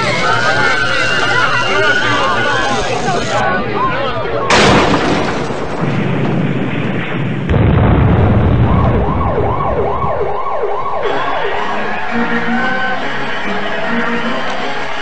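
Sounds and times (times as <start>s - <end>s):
heavy rumbling explosion: 4.5s - 10.3s
siren wailing up and down: 8.6s - 14.2s.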